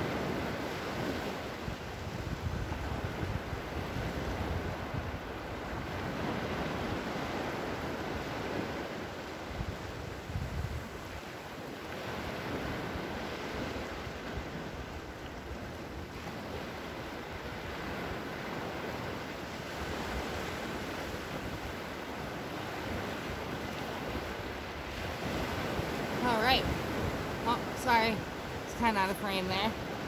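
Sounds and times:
wind buffeting microphone: 0.0s - 11.3s
small waves breaking on shore: 0.0s - 30.0s.

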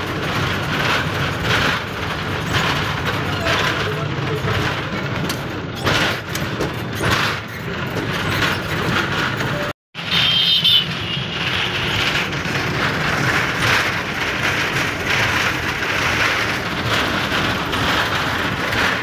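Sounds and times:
bus engine and road noise: 0.0s - 19.0s
wind rushing through windows: 11.4s - 19.0s.

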